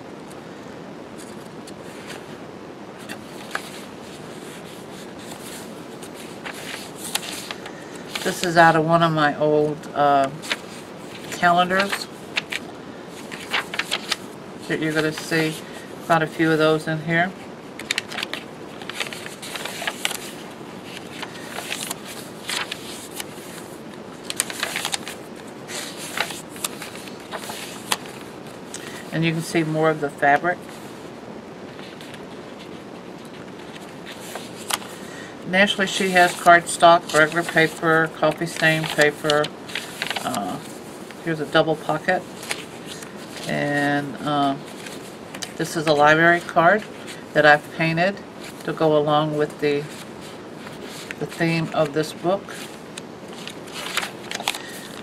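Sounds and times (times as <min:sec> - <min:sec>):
page turning: 0:03.0 - 0:08.6, 0:10.2 - 0:16.4, 0:17.8 - 0:29.6, 0:31.7 - 0:47.2, 0:49.8 - 0:55.0
paper rustling and tapping: 0:05.2 - 0:08.5, 0:10.2 - 0:14.3, 0:17.8 - 0:23.6, 0:24.2 - 0:28.9, 0:31.8 - 0:35.0, 0:36.0 - 0:40.8, 0:42.4 - 0:43.5, 0:52.6 - 0:55.0.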